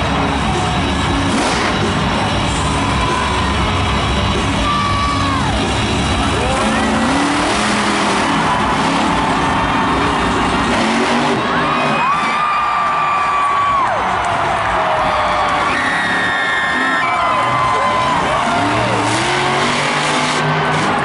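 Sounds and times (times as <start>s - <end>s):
truck engine revving: 0.0s - 12.6s, 13.8s - 21.0s
crowd noise: 0.0s - 21.0s
loud arena music: 0.0s - 21.0s.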